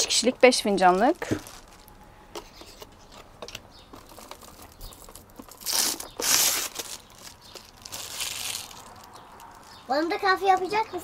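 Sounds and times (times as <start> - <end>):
plastic film crinkling: 0.6 - 3.2, 3.8 - 9.8.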